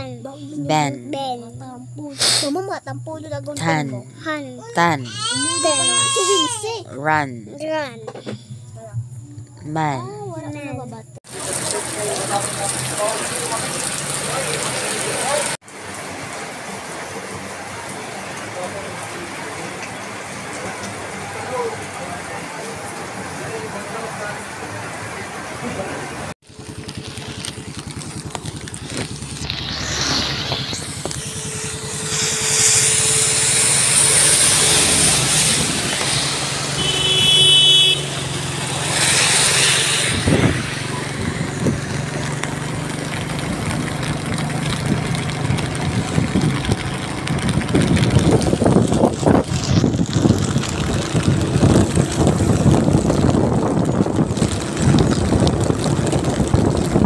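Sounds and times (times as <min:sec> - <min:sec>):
tyre hiss on wet asphalt: 0:02.1 - 0:02.6, 0:26.5 - 0:52.6
rain: 0:10.6 - 0:57.0
motorcycle engine running: 0:26.4 - 0:57.0
wind buffeting microphone: 0:40.1 - 0:42.2, 0:44.7 - 0:57.0.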